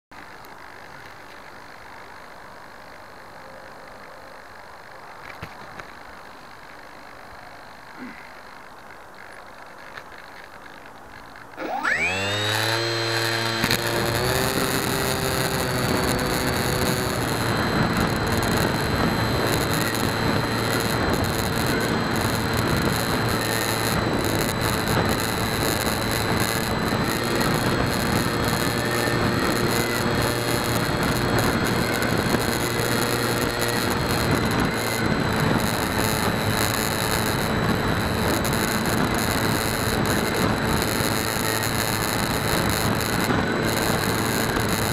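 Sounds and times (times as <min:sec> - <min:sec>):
electric motor propeller whine: 0:11.2 - 0:44.9.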